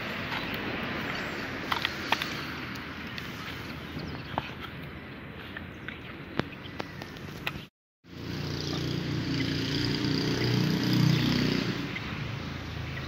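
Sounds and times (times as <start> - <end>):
vehicle engine passing by: 8.1 - 13.0.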